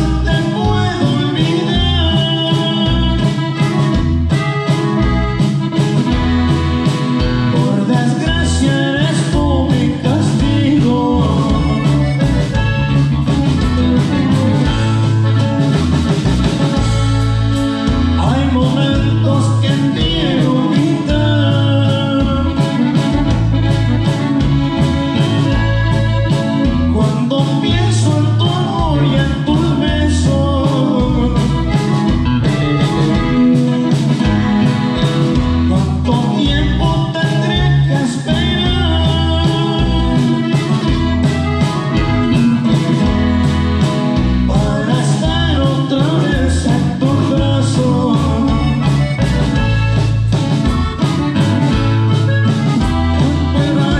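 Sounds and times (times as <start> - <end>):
man singing: 0.0 - 3.9, 7.4 - 12.7, 18.1 - 23.2, 26.7 - 32.1, 35.6 - 41.1, 44.4 - 49.5, 52.8 - 53.9
band playing drums bass guitar: 0.0 - 53.9.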